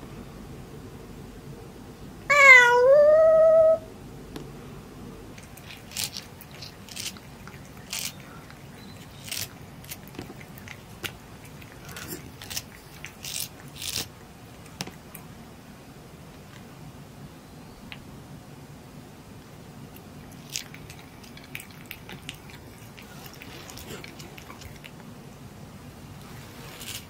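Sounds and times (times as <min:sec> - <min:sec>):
kitten meowing: 0:02.3 - 0:03.9.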